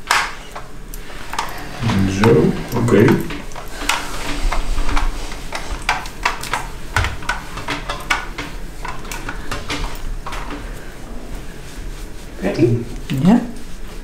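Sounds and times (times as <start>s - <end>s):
light clicks and clatter: 0.1s - 11.0s.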